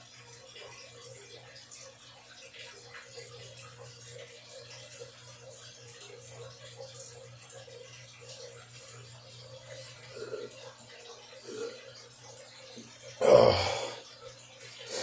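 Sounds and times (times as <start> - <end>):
man gulping beer: 13.2 - 14.0.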